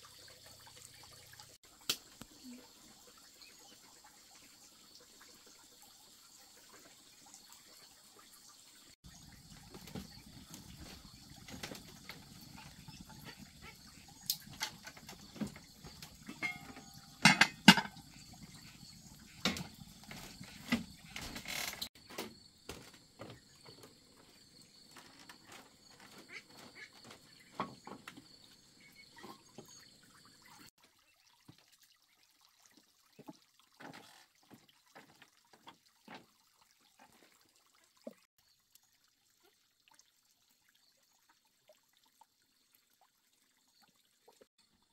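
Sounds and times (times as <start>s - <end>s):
footsteps on bamboo deck: 19.7s - 28.2s.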